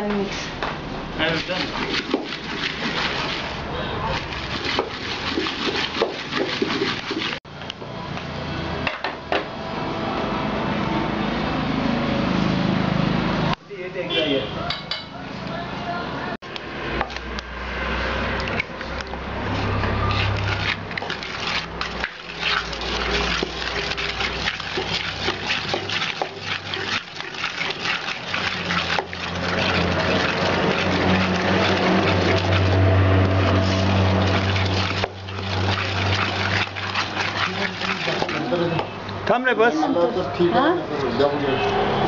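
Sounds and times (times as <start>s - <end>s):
wooden spoon beating batter in bowl: 1.2s - 7.4s, 18.4s - 39.0s.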